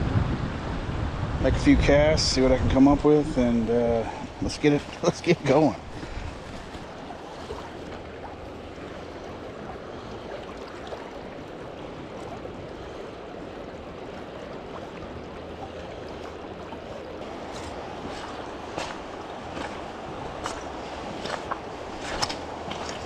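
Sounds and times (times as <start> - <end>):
wind on microphone: 0.0 - 5.0, 5.7 - 15.4
river water running: 0.1 - 23.0.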